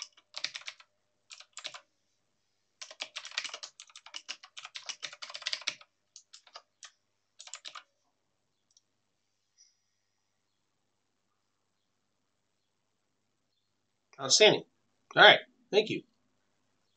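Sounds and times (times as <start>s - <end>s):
typing on computer keyboard: 0.0s - 1.8s, 2.8s - 7.9s.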